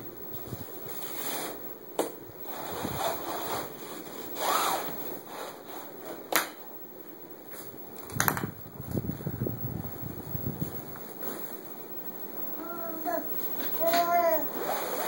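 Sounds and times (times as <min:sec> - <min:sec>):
rustling and rubbing: 0:02.5 - 0:06.3, 0:13.5 - 0:15.0.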